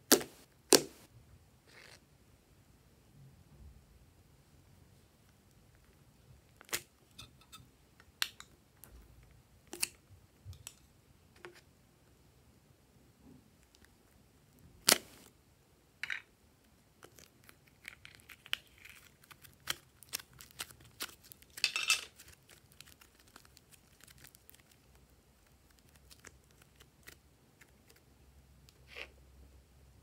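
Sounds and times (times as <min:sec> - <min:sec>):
clay tearing rustle: 0:14.6 - 0:15.3, 0:17.0 - 0:28.1
small clicks and crinkles: 0:17.0 - 0:28.0.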